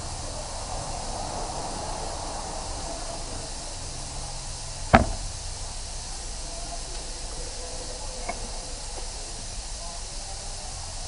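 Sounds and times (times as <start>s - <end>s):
workshop background hiss: 0.0s - 11.0s
sharp metal knock: 4.9s - 5.4s.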